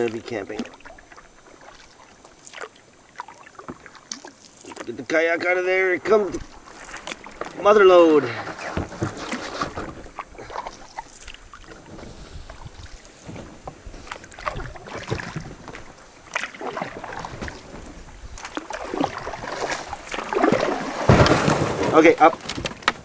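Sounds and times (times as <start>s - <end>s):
paddle splashing water: 0.0s - 23.0s.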